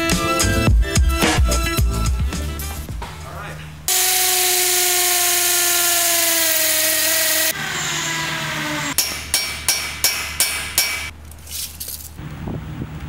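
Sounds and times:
drill boring into concrete: 0:03.9 - 0:09.0
hammer striking steel bolt: 0:09.0 - 0:11.1.

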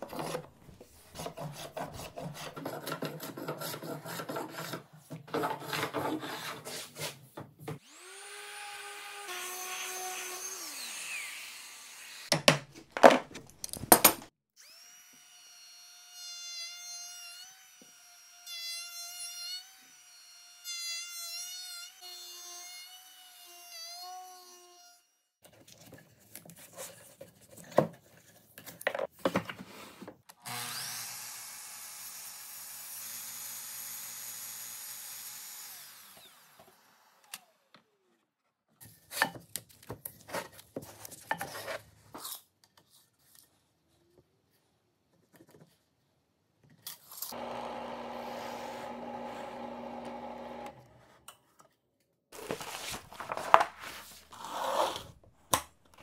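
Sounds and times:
power tool running: 0:07.8 - 0:12.3, 0:33.0 - 0:37.6, 0:47.3 - 0:51.2
motor running: 0:47.4 - 0:50.9
veneer sheet crinkling: 0:52.4 - 0:54.5
tape being pulled: 0:52.4 - 0:55.6.

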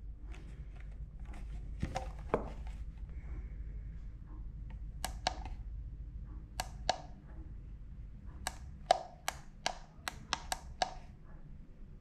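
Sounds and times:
multimeter buttons clicking: 0:04.7 - 0:05.6, 0:06.5 - 0:07.2, 0:08.3 - 0:11.1.

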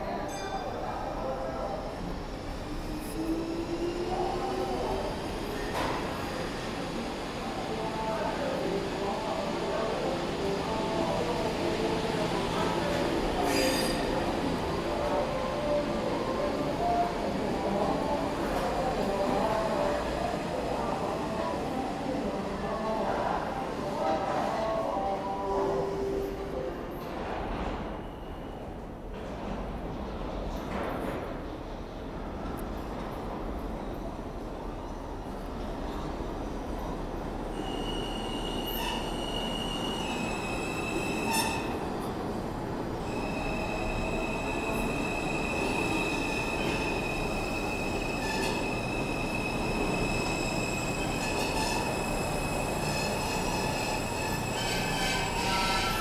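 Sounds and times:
subway train rumbling in tunnel: 0:00.0 - 0:56.0
high-pitched train squeal: 0:13.4 - 0:14.2, 0:37.5 - 0:41.8, 0:43.0 - 0:56.0.

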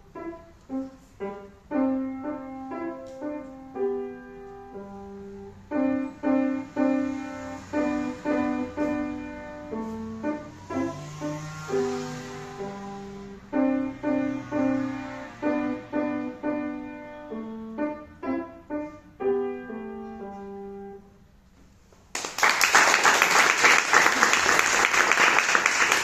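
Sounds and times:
piano chords: 0:00.0 - 0:21.6
applause: 0:22.1 - 0:26.0.

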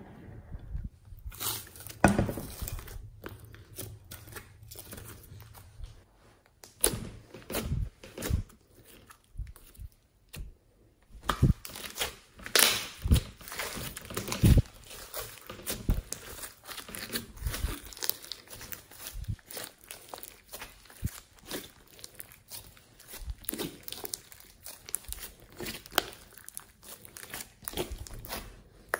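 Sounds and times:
slime crackling and popping: 0:11.2 - 0:28.9.

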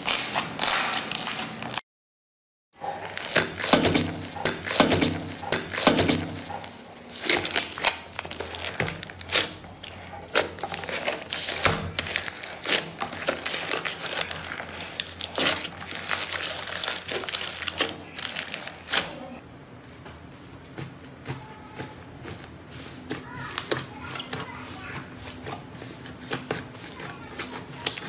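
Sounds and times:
aluminium foil crinkling: 0:02.8 - 0:19.4.

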